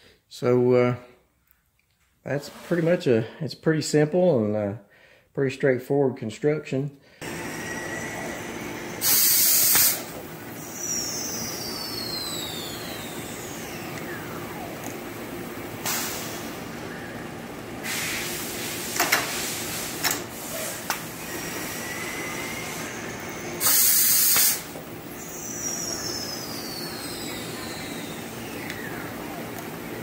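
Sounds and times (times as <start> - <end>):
loud hiss: 7.2 - 14.6, 15.7 - 28.2
faint falling whines: 7.2 - 17.8, 21.0 - 23.6, 24.7 - 30.0
lathe running: 7.2 - 30.0.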